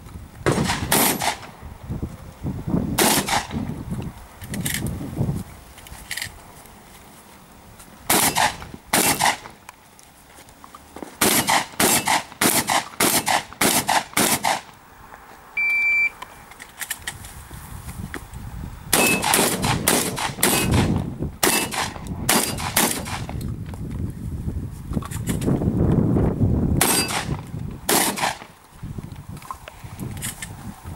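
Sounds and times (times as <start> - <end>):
shotgun shots: 0.4 - 1.5, 3.0 - 3.6, 8.1 - 9.6, 11.2 - 14.7, 18.9 - 23.4, 26.8 - 28.5
short high beep: 15.6 - 16.2.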